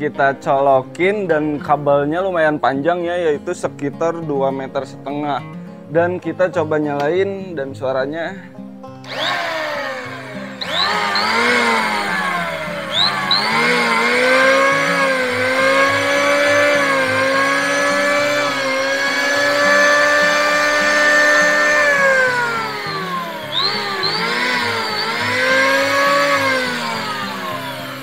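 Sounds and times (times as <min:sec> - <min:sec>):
electric hand planer whining: 0:09.0 - 0:28.0.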